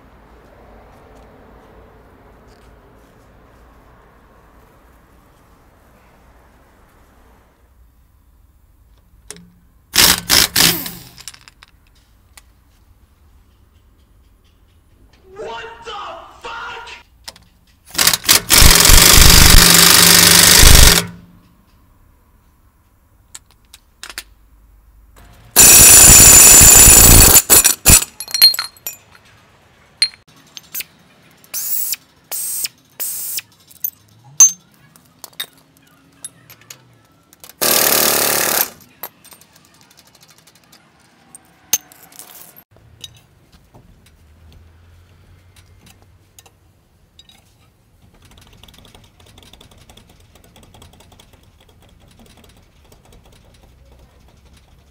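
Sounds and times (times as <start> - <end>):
pneumatic impact wrench hammering: 9.3 - 11.3, 17.9 - 21.4, 25.6 - 28.1, 31.5 - 33.5, 37.6 - 38.9
small metal clanks: 13.4 - 15.2, 30.0 - 32.2, 32.8 - 37.6.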